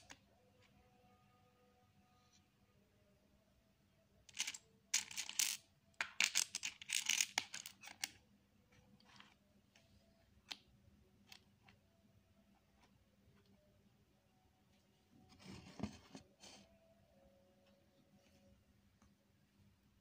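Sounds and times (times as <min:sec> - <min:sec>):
plastic pieces clicking: 0:04.3 - 0:08.2.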